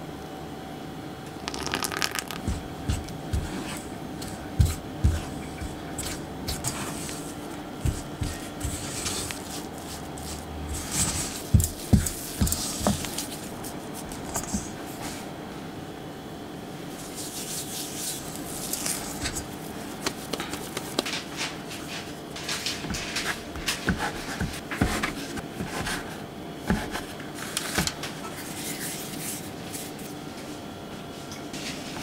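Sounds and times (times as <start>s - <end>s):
dough rubbing swishes: 2.5s - 15.2s, 16.9s - 21.0s.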